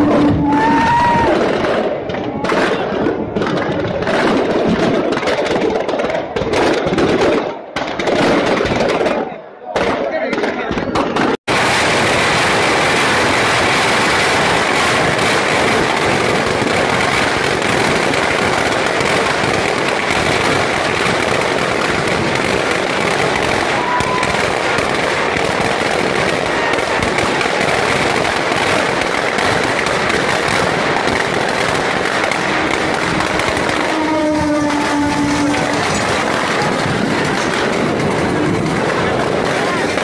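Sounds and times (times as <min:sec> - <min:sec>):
firecrackers crackling: 0:00.0 - 0:40.0.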